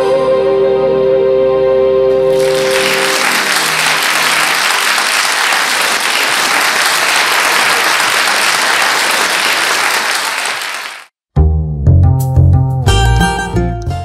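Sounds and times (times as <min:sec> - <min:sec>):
audience applauding: 0:02.2 - 0:11.1.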